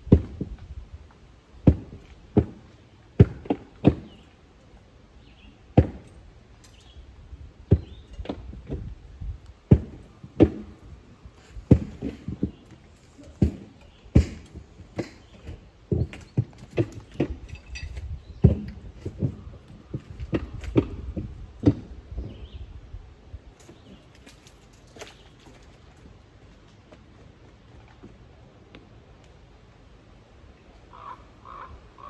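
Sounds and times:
knocks and thuds: 7.7 - 8.9, 9.7 - 10.9, 11.6 - 22.4.

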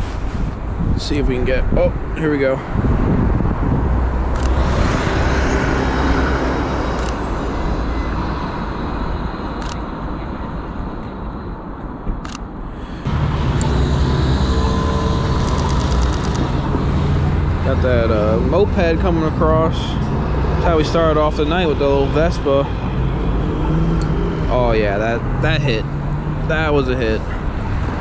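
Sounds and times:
city street traffic: 0.0 - 28.0
sharp clicks: 15.4 - 16.6.

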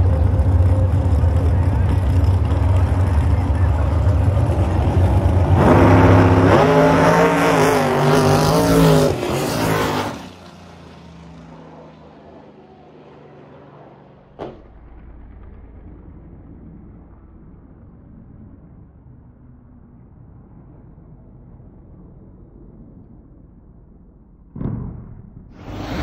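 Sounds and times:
drag car engine at full throttle: 0.0 - 19.4, 25.6 - 26.0.

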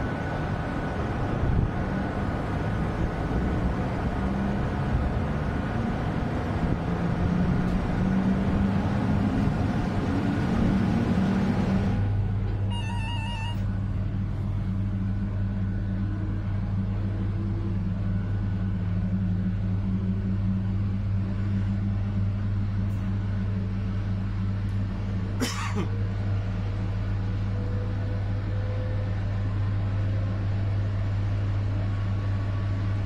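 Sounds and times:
electric locomotive hum: 0.0 - 33.0
short beeps: 12.7 - 13.7.

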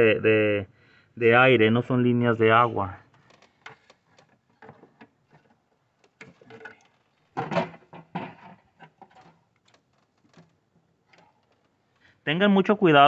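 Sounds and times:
hands handling engine parts: 3.1 - 12.1.

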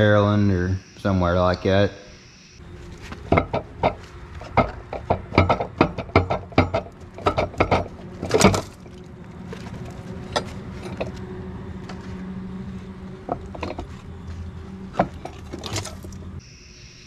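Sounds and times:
low mechanical hum: 1.9 - 17.0
sharp knocks: 3.2 - 8.8.

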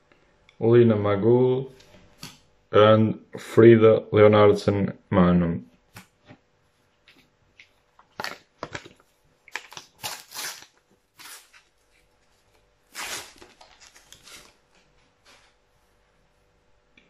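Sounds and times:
paper packet tearing and crinkling: 8.2 - 15.5.

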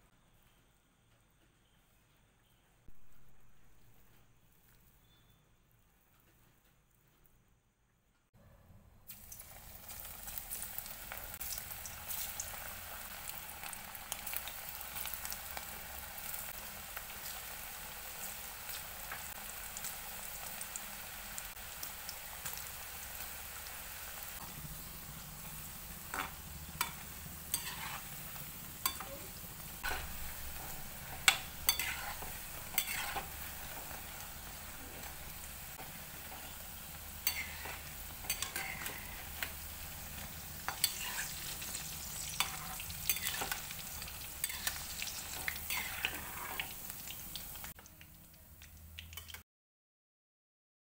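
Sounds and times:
food deep-frying in oil: 9.1 - 49.4
metal spoon scraping a pan: 26.0 - 34.0, 35.7 - 46.8.

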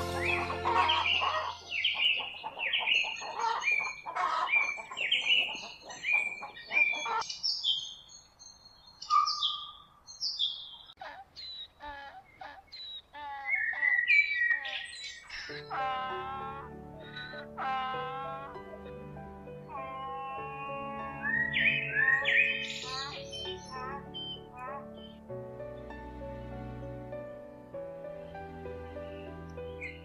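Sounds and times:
bird chirps: 0.1 - 16.0, 19.6 - 25.2
bird whistles and trilled calls: 0.2 - 16.0, 20.5 - 25.2.

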